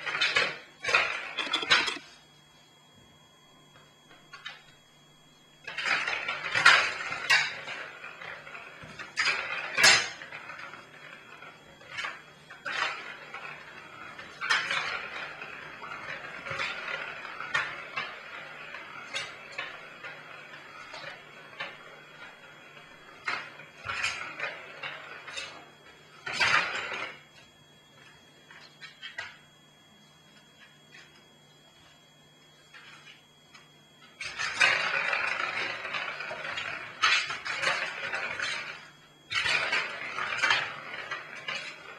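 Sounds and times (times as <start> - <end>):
ball rattling in plastic track: 34.3 - 38.8, 39.4 - 41.9.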